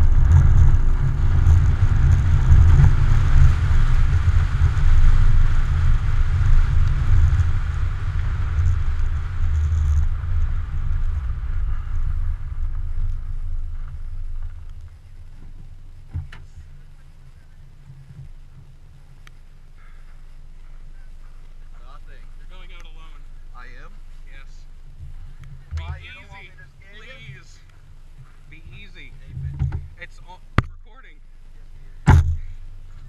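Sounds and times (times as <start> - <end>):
wind on microphone: 0.0 - 21.6
car driving over icy snow: 0.0 - 33.0.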